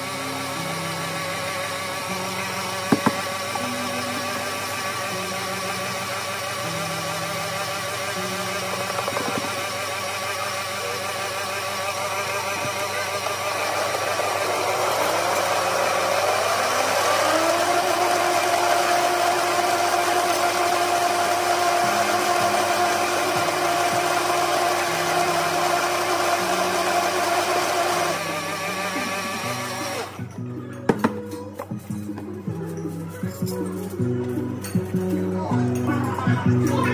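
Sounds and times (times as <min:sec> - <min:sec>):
blender motor running: 0:00.0 - 0:30.3
soft background music: 0:28.6 - 0:36.9.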